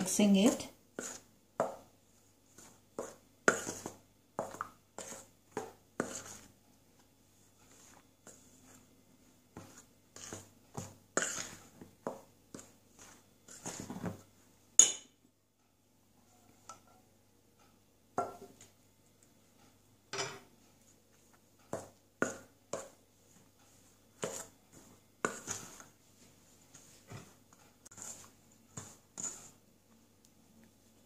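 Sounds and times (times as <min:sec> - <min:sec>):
spoon scraping steel bowl: 0:03.5 - 0:05.3, 0:06.0 - 0:06.5, 0:09.6 - 0:11.7, 0:12.6 - 0:14.2, 0:27.8 - 0:29.6.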